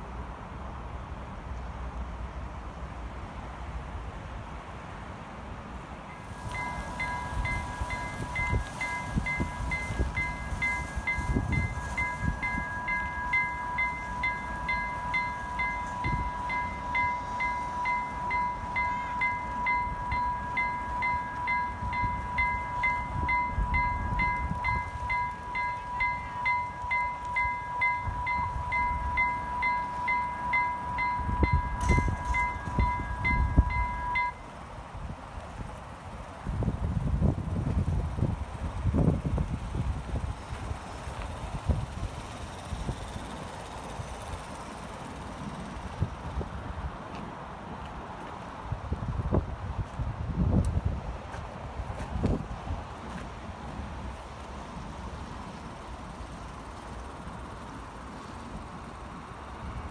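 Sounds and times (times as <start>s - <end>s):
wind rumble on microphone: 6.3s - 13.3s, 31.0s - 34.3s, 34.9s - 43.3s, 48.5s - 54.2s
level crossing bell ringing: 6.4s - 34.4s.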